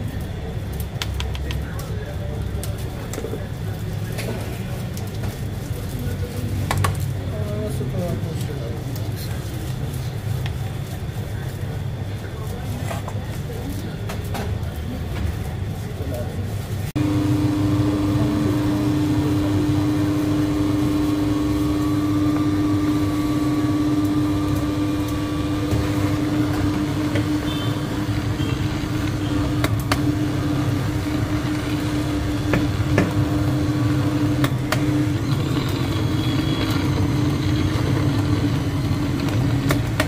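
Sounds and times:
blender motor running: 0:17.0 - 0:40.0.

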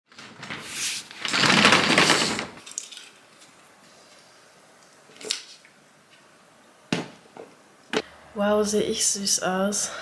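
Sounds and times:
roller shutter slats rattling: 0:00.1 - 0:03.1.

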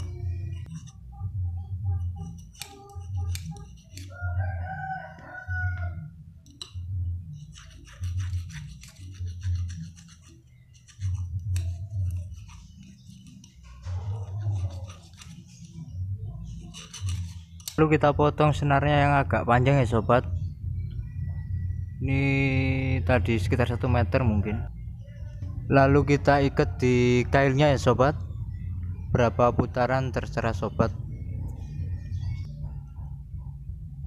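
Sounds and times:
hand file scraping metal hook: 0:02.2 - 0:04.2, 0:07.4 - 0:15.9, 0:16.5 - 0:17.8
rooster crowing: 0:04.1 - 0:06.2, 0:26.1 - 0:27.6.

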